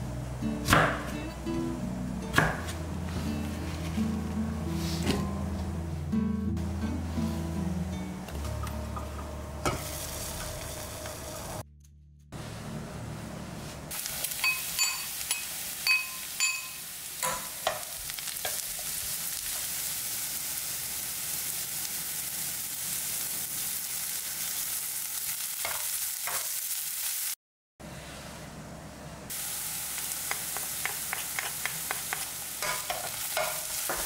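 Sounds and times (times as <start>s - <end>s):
food sizzling in oil: 9.7s - 11.6s, 13.9s - 27.4s, 29.3s - 34.0s
metal utensil clinking on pan: 14.3s - 18.6s.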